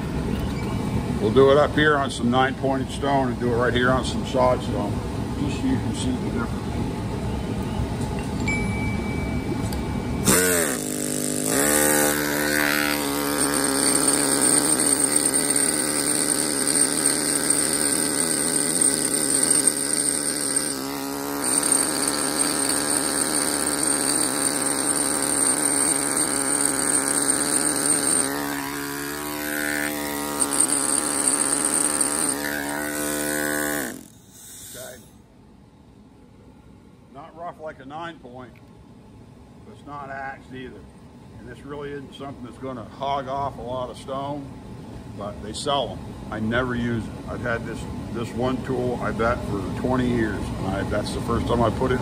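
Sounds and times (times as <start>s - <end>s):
air hammer chisel on granite: 10.2s - 35.2s.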